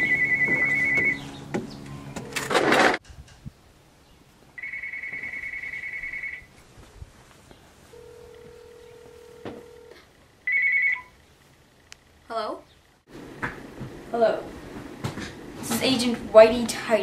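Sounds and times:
cordless telephone ringing: 0.1s - 1.2s, 4.6s - 6.5s, 7.9s - 11.1s.

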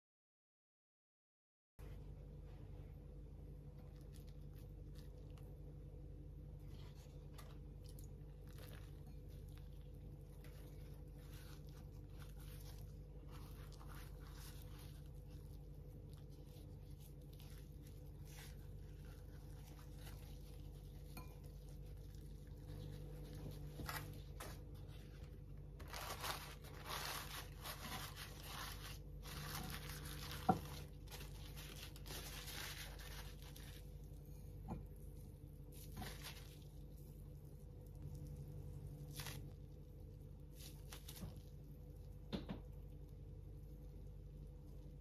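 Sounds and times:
faint steady hum: 1.8s - 45.0s
kitchen paper rustling: 6.4s - 42.1s.

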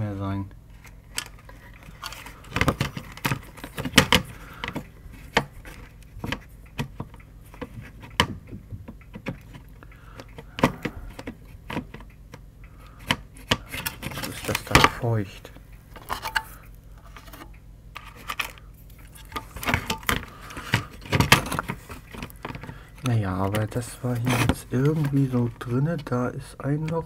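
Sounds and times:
hands handling circuit board: 0.7s - 27.0s.

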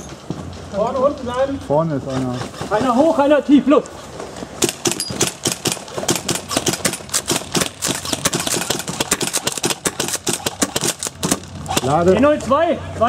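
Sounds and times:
airsoft rifles firing in bursts: 4.6s - 12.2s.

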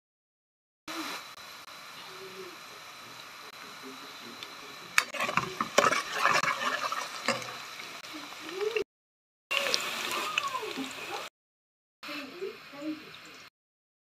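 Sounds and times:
onions sizzling in oil: 0.9s - 8.8s, 9.5s - 11.3s, 12.1s - 13.5s
metal spatula scraping pot: 5.0s - 7.9s.

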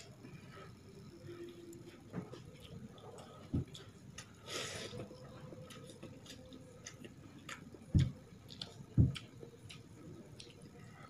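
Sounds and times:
person eating by hand: 1.6s - 11.0s.

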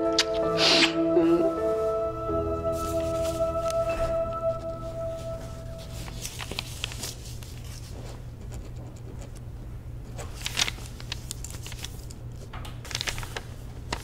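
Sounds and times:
low room hum: 0.0s - 14.0s
papers being handled: 2.7s - 9.4s, 10.0s - 14.0s.

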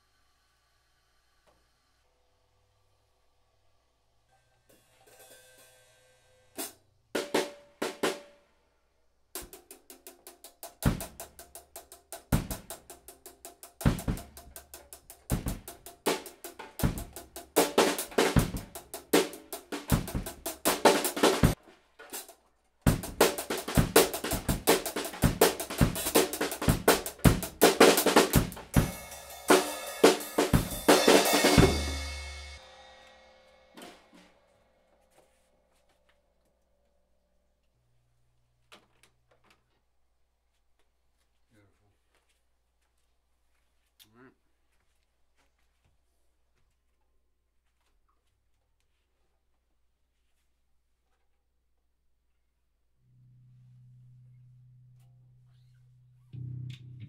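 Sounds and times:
cymbal ringing: 4.3s - 6.6s, 28.8s - 34.9s
drum kit beat: 6.6s - 8.3s, 9.4s - 34.3s.

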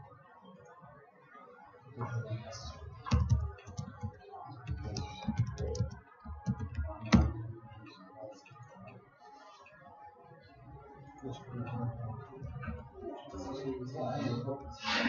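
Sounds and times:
computer keyboard typing: 3.0s - 7.6s
low desk thuds: 3.0s - 7.6s.

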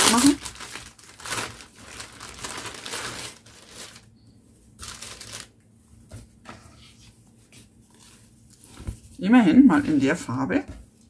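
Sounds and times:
plastic wrapping crinkling: 0.0s - 5.6s.

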